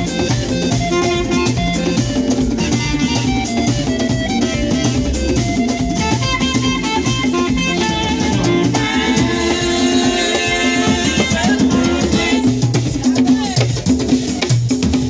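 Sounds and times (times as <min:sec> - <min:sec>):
alto saxophone lead: 0:00.0 - 0:12.6
electric guitar: 0:00.0 - 0:13.6
drum kit steady beat: 0:00.0 - 0:15.0.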